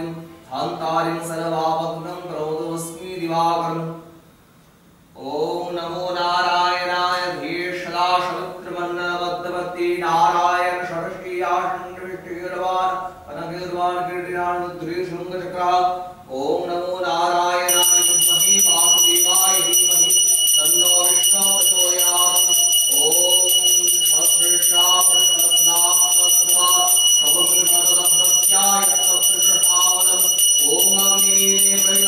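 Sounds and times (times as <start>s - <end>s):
voice chanting: 16.3s - 32.0s
handbell ringing: 17.7s - 32.0s.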